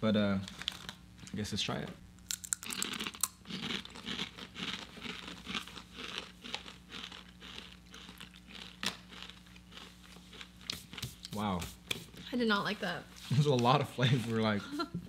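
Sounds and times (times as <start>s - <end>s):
potato chips crunching: 2.2s - 11.4s.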